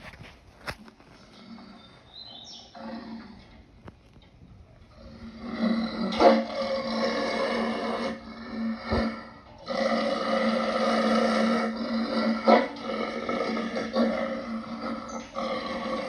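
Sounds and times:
growling wolf-like calls: 0:04.9 - 0:16.0.

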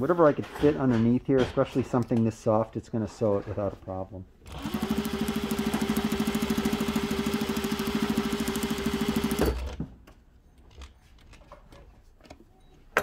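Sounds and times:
sewing machine stitching: 0:04.4 - 0:09.8
sewing machine thump: 0:09.1 - 0:09.9.

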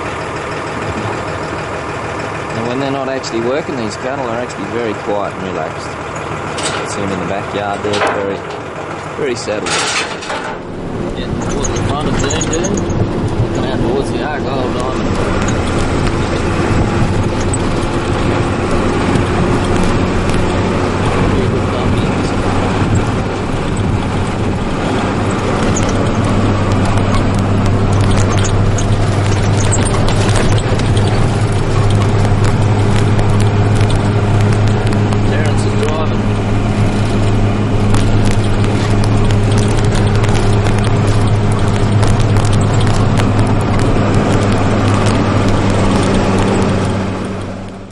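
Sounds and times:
cab rattling and knocking: 0:00.0 - 0:47.9
tyre and road noise: 0:00.0 - 0:47.9
vehicle engine humming: 0:00.0 - 0:47.9.

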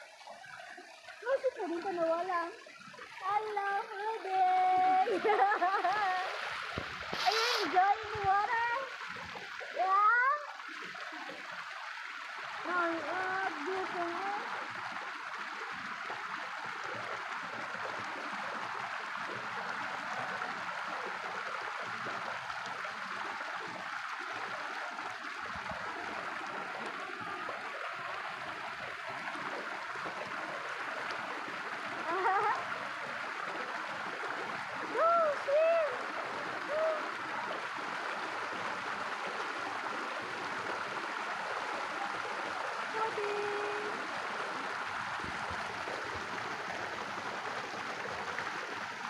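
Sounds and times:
stream water over rocks: 0:00.0 - 0:49.0
short high cries: 0:07.2 - 0:07.7.

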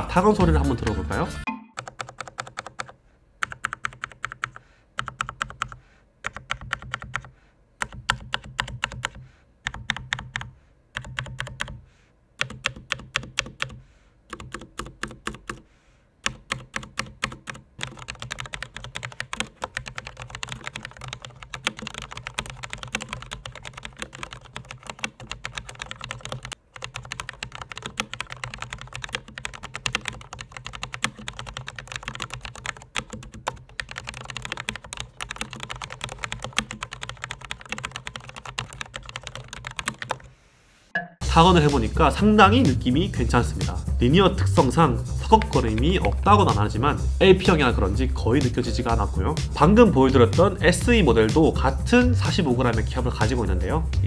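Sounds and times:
mechanical keyboard typing: 0:01.8 - 0:11.8, 0:12.4 - 0:15.6, 0:16.2 - 0:40.3.

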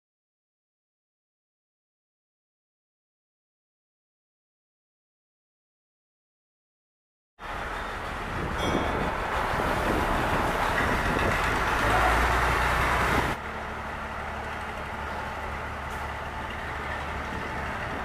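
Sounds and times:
boat engine running: 0:07.4 - 0:18.0.

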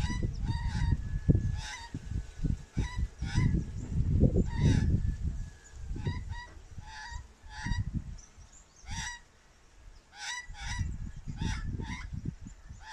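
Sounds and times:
magpie calls: 0:10.1 - 0:12.1.

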